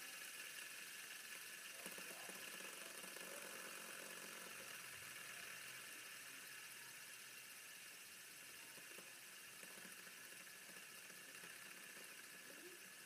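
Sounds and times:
fidget spinner whirring: 0:00.0 - 0:13.0
faint low hum: 0:01.3 - 0:13.0.

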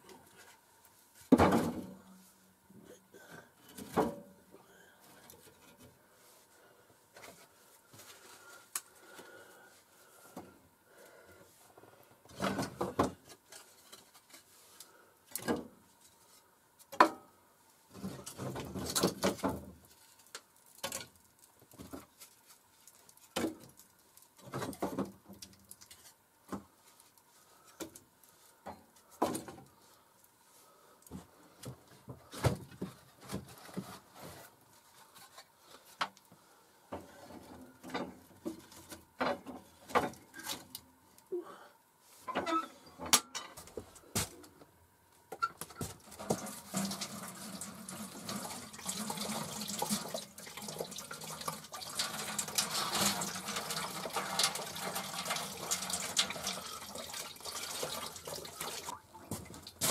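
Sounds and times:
wood rustling and scraping: 0:31.2 - 0:36.2.

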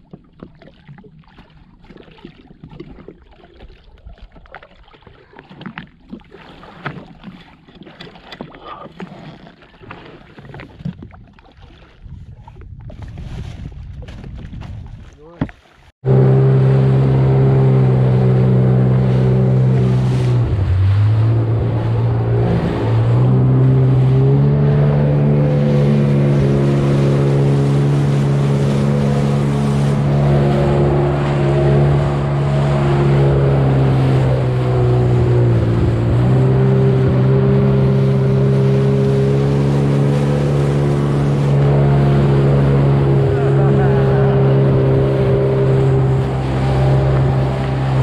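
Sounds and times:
jet ski engine droning: 0:16.0 - 0:48.0
water rushing and spraying: 0:16.0 - 0:48.0.

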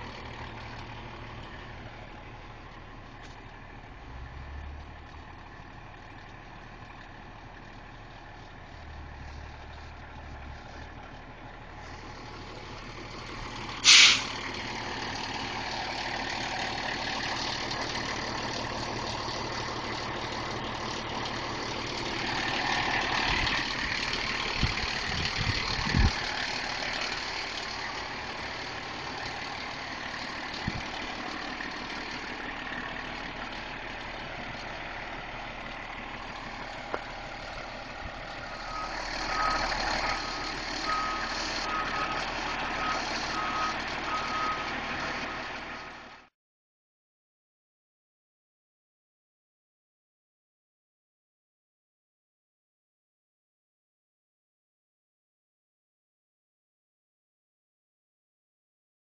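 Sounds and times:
diesel engine idling: 0:00.0 - 0:46.3
backup alarm beeping: 0:40.8 - 0:44.7.

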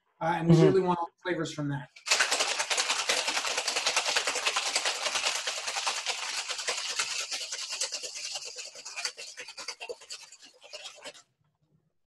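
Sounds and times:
ice rattling in cocktail shaker: 0:02.0 - 0:11.2.

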